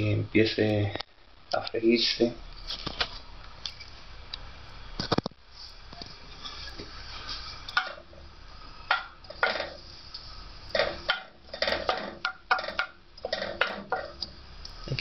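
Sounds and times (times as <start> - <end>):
wooden spoon scraping pot: 6.2 - 8.2, 10.7 - 14.2.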